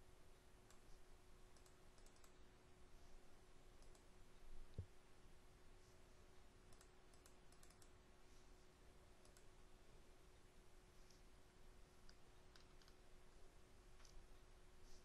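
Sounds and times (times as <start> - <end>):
computer mouse clicks: 1.5 - 2.4, 3.8 - 4.1, 6.7 - 8.0, 9.2 - 9.5, 12.0 - 13.0.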